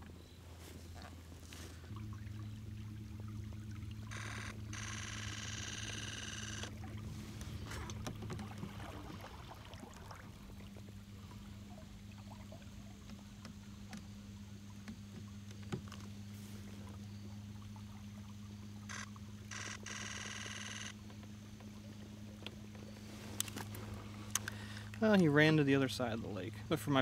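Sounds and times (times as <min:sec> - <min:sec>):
steady low hum: 0:00.0 - 0:27.0
water sounds from kayak: 0:00.0 - 0:27.0
kingfisher rattling call: 0:04.1 - 0:06.7
small clicks: 0:23.4 - 0:25.0.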